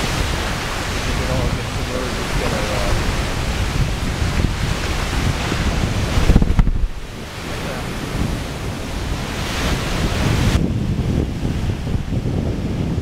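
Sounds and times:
ocean surf rushing: 0.0s - 13.0s
wind buffeting microphone: 0.0s - 13.0s
loud low thumps: 1.2s - 7.2s.

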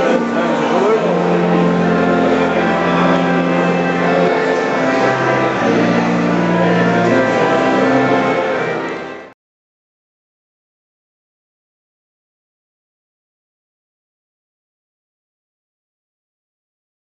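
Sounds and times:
pipe organ playing chords: 0.0s - 9.4s.

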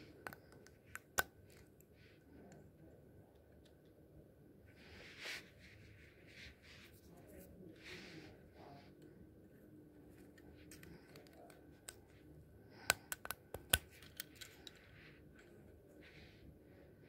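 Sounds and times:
plastic pieces clicking together: 12.8s - 14.8s.

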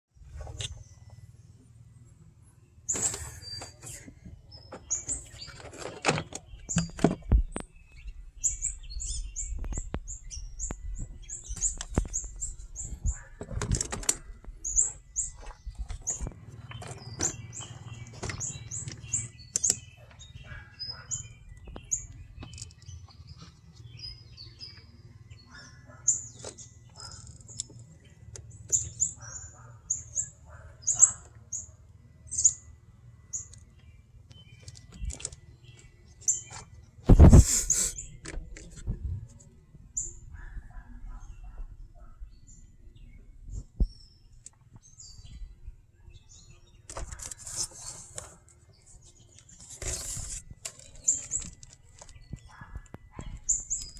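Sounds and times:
small birds chirping: 0.1s - 53.9s
scattered clicks and knocks: 10.7s - 20.3s, 21.6s - 23.6s, 33.5s - 37.5s.

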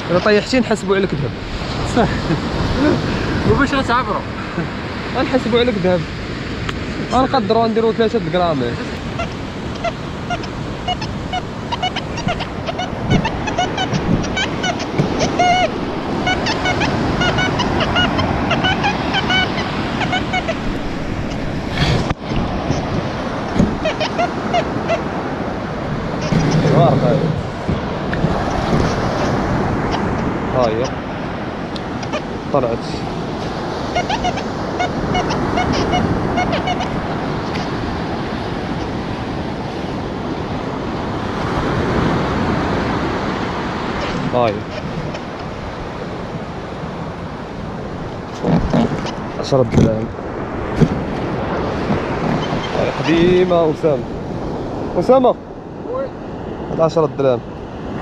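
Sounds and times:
birds chirping: 0.0s - 41.2s, 43.0s - 55.8s
waves washing on sandy beach: 0.0s - 58.0s
metal detector beeps: 9.2s - 20.6s.

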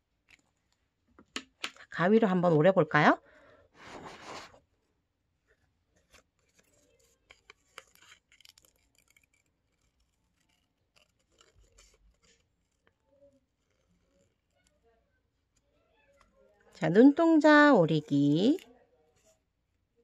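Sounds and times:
scissors snipping paper: 6.0s - 14.8s.

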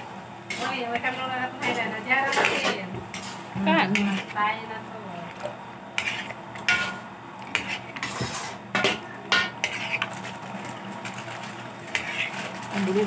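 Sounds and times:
metal utensil scraping a pan: 0.5s - 3.4s, 6.0s - 10.2s, 11.9s - 12.5s.

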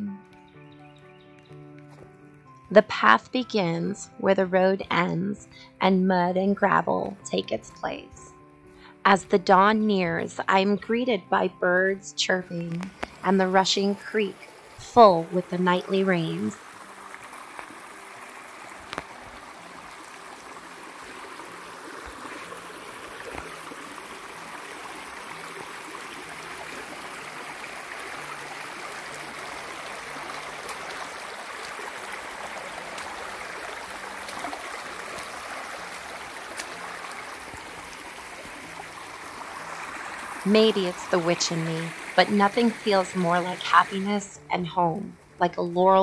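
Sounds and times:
rushing creek water: 12.8s - 46.0s.

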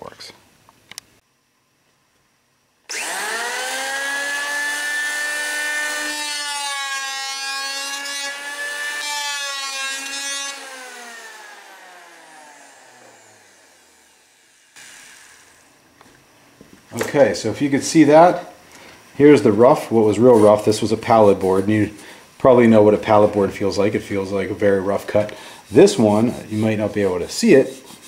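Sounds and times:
electric planer whining: 2.9s - 15.7s.

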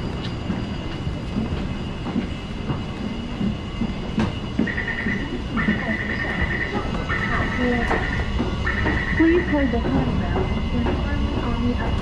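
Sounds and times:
metro train rumbling: 0.0s - 12.0s.

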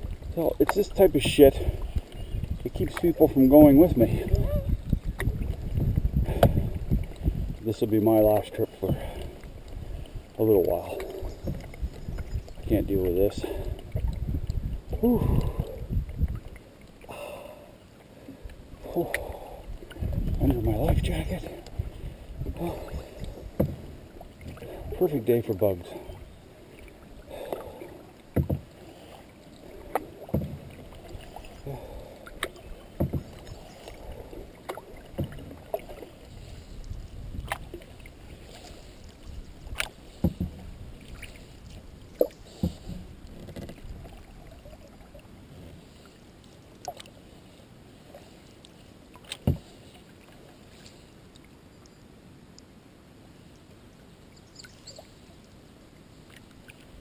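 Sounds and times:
water swishing off paddle: 0.0s - 51.5s
water lapping: 0.0s - 51.7s, 53.4s - 57.0s
paddle knocking against boat: 8.4s - 9.3s, 10.9s - 12.3s, 23.4s - 24.6s, 28.3s - 28.7s, 29.9s - 31.0s, 32.3s - 33.4s, 34.6s - 36.0s, 39.7s - 40.8s, 42.2s - 43.9s, 49.3s - 49.7s.

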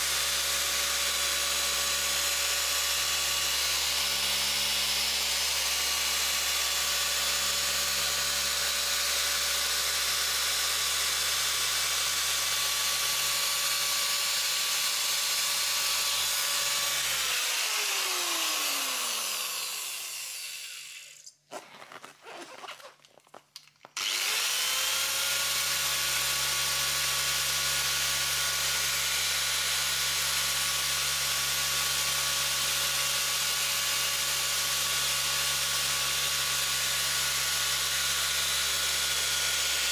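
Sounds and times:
rotary polisher whine: 0.0s - 21.2s, 24.0s - 26.6s.

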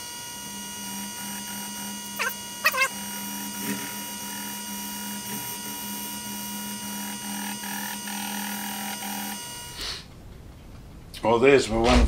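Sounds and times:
milling machine motor whine: 0.0s - 9.8s.

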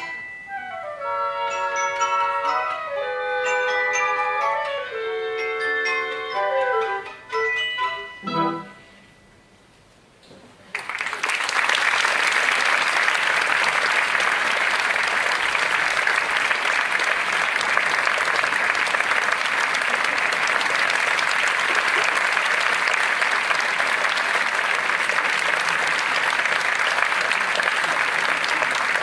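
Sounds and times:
audience applauding: 10.7s - 29.0s.

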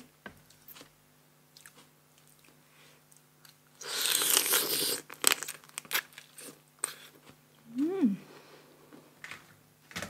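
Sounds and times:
crab shell crunching: 3.9s - 7.0s.

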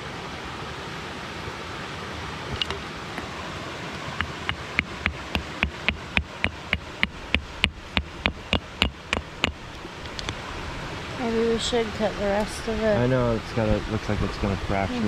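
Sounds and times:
steady background hiss: 0.0s - 15.0s
hammer tapping on rock: 4.2s - 10.4s.

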